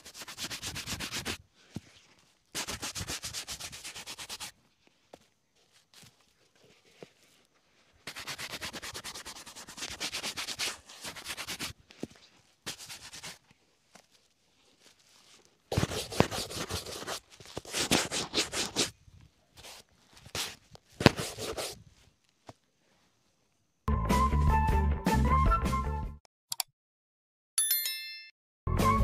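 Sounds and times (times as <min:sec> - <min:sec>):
shoe brush scratchy strokes: 0:00.0 - 0:22.1.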